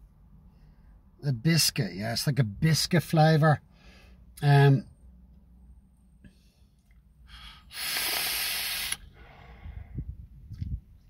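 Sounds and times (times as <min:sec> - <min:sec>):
man exhaling vapour: 0:07.3 - 0:10.0.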